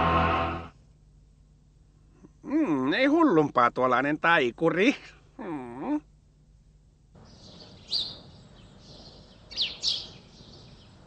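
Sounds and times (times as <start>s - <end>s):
faint outdoor ambience: 0.0s - 11.0s
birds chirping: 7.2s - 11.0s.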